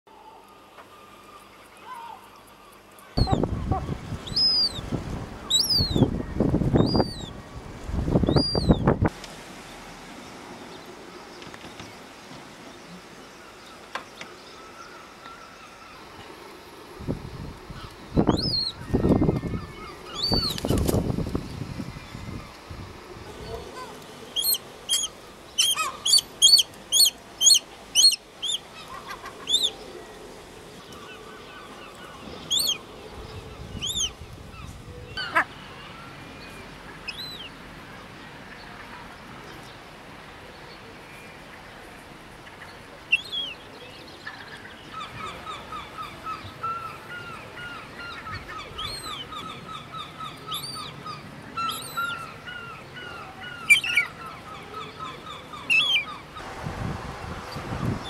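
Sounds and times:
gull chick peeping: 0:03.2 - 0:04.8, 0:05.5 - 0:06.1, 0:06.7 - 0:07.3, 0:08.2 - 0:08.9, 0:18.2 - 0:21.0, 0:24.4 - 0:29.7, 0:32.5 - 0:32.8, 0:33.8 - 0:34.1.

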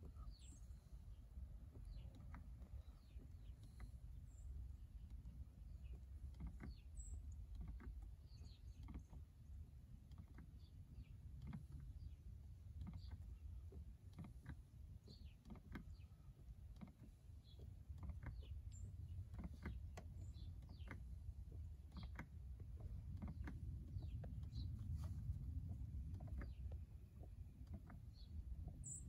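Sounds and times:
low steady rumble: 0:00.0 - 0:29.0
hand pump clicking and creaking: 0:06.2 - 0:08.1, 0:16.6 - 0:24.6.

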